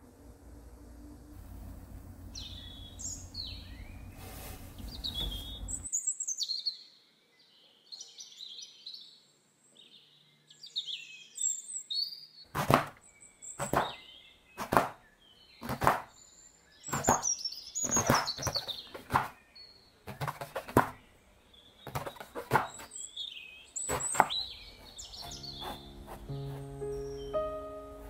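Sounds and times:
knife chopping on wooden board: 0:12.5 - 0:13.0, 0:13.6 - 0:14.0, 0:14.6 - 0:15.0, 0:15.6 - 0:16.1, 0:16.9 - 0:17.2, 0:17.9 - 0:19.4, 0:20.1 - 0:21.0, 0:21.9 - 0:22.9, 0:23.9 - 0:26.7
high chirps: 0:25.0 - 0:28.0
soft music: 0:25.2 - 0:28.0.

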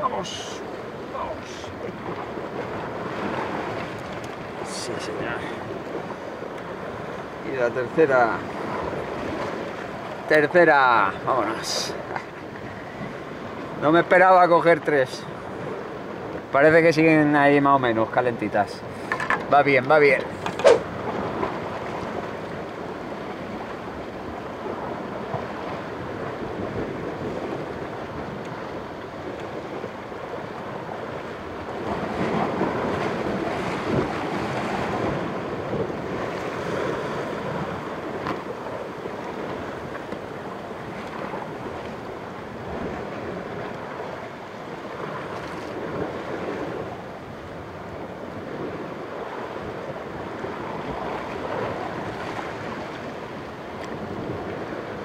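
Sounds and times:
waves washing against rocks: 0:00.0 - 0:55.0
wind on microphone: 0:18.8 - 0:55.0.

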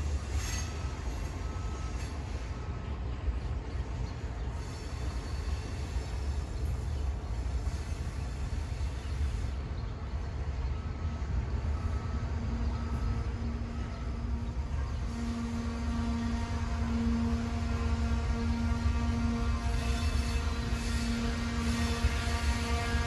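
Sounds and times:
freight train rumbling: 0:00.0 - 0:23.0
faint steady tone: 0:07.8 - 0:23.0.

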